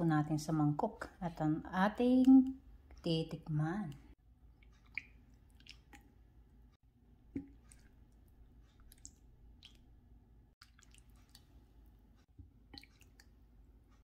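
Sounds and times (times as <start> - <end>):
soup splashing: 4.6 - 6.6, 7.2 - 11.9.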